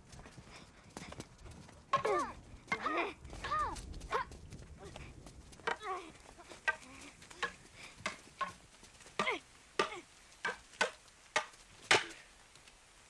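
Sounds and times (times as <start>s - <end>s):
wooden swords clacking: 1.9s - 3.7s, 5.6s - 12.3s.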